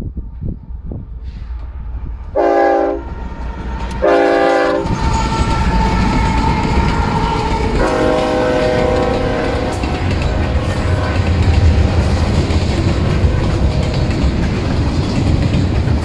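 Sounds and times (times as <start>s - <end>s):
locomotive whine: 0.0s - 16.0s
train horn blasts: 2.2s - 11.8s
wheels clattering on rails: 3.2s - 16.0s.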